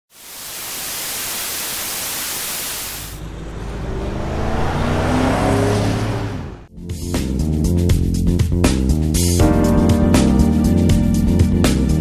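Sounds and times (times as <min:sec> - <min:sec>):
static-like hiss: 0:00.1 - 0:03.2
car engine revving: 0:03.2 - 0:06.7.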